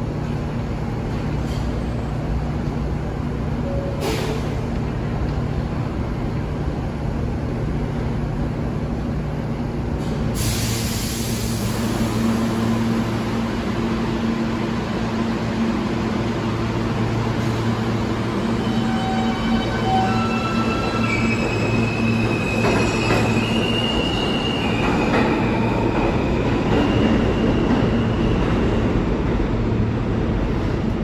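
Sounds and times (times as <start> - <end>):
subway train rumble: 0.0 - 31.0
air hiss: 10.0 - 12.1.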